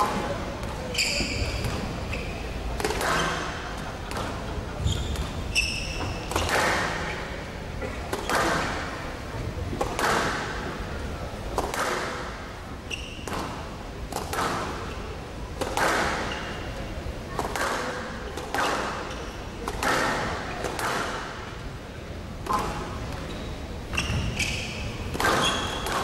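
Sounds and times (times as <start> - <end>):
shoes squeaking on court floor: 0.8 - 7.3, 12.8 - 13.6, 16.0 - 16.7, 22.5 - 26.0
squash ball hits: 2.8 - 3.5, 6.2 - 7.1, 9.8 - 10.6, 11.6 - 12.3, 13.2 - 14.8, 15.6 - 16.3, 17.4 - 19.0, 19.6 - 21.4, 25.1 - 26.0.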